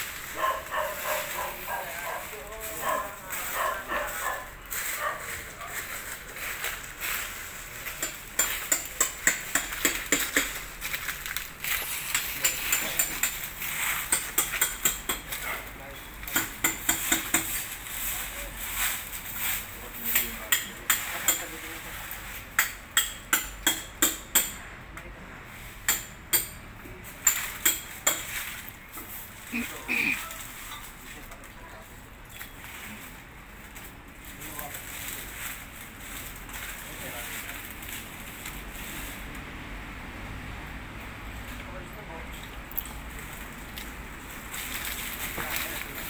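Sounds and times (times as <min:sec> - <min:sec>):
stiff broom sweeping: 0:00.0 - 0:08.7, 0:10.6 - 0:14.4, 0:16.9 - 0:20.2, 0:28.2 - 0:31.1, 0:34.3 - 0:39.3.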